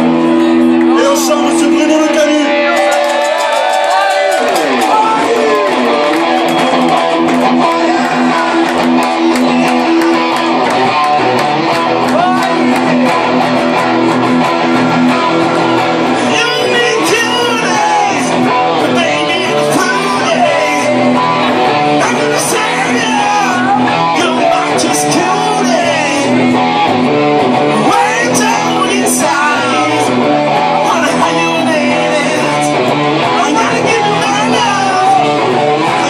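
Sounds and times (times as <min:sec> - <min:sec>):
rock band playing: 0:00.0 - 0:36.0
man singing: 0:16.2 - 0:26.6, 0:27.7 - 0:36.0.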